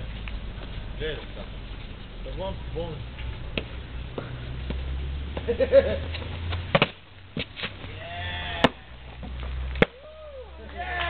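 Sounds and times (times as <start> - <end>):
person landing on stone thud: 6.6 - 8.0.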